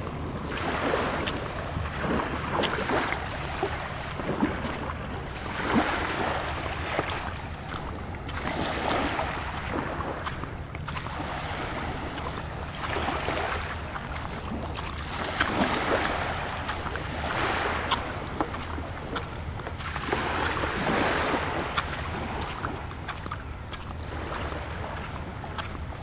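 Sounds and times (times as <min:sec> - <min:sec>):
low engine hum: 0:00.0 - 0:26.0
small waves washing on beach: 0:00.0 - 0:26.0
light ticks: 0:10.7 - 0:10.9.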